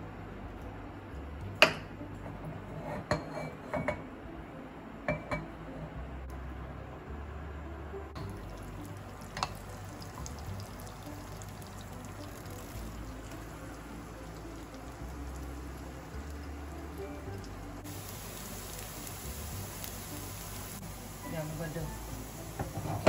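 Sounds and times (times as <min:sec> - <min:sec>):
faint steady hiss: 0:08.1 - 0:23.0.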